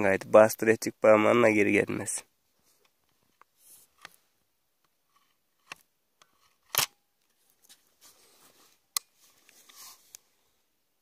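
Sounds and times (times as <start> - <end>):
air rifle clicks: 5.6 - 7.0
hands rustling on gun: 6.3 - 10.4.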